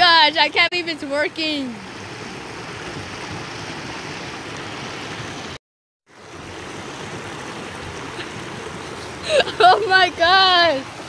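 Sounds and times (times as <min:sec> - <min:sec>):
river water rushing over rocks: 0:01.8 - 0:05.6, 0:06.2 - 0:11.0.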